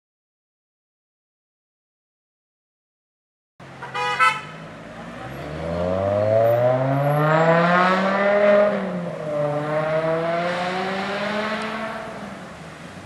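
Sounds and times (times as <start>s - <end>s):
car horn toot: 3.8s - 4.6s
car engine accelerating: 4.6s - 12.8s.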